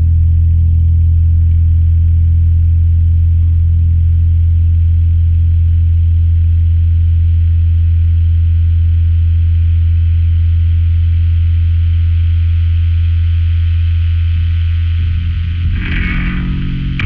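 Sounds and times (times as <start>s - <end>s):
low amplifier hum: 0.0s - 17.0s
distorted electric guitar drone: 10.6s - 17.0s.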